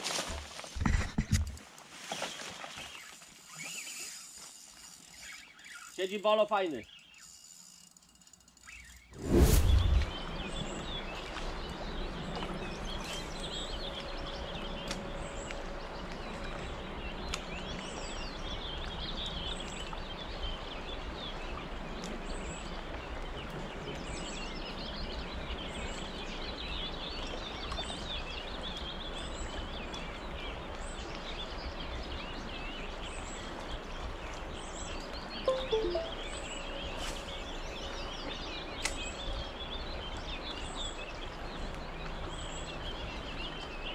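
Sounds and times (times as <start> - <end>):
small birds chirping: 2.9 - 15.6, 34.4 - 36.8.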